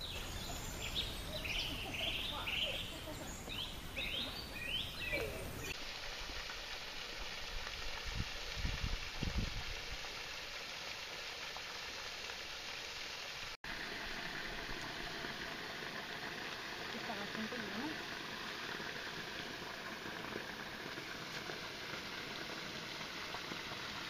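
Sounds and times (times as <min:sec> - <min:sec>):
bird chirps: 0:00.0 - 0:05.8.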